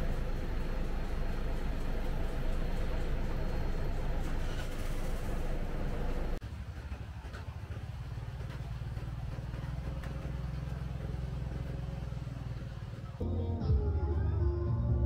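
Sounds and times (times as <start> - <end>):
vehicle engine rumbling: 0.0 - 15.0
background music: 13.2 - 15.0.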